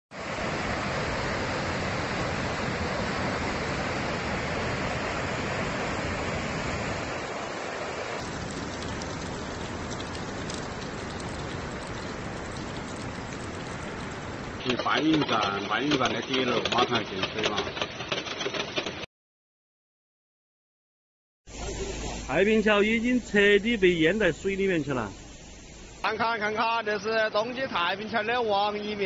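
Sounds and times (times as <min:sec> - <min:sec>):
waterfall rushing: 0:00.2 - 0:14.7.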